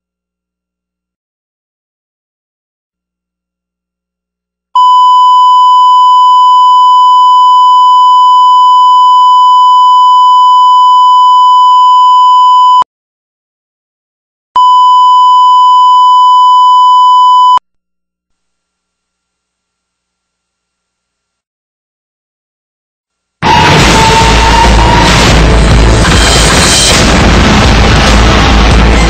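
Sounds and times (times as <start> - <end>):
steady test tone beep: 4.8 - 12.8, 14.6 - 17.6.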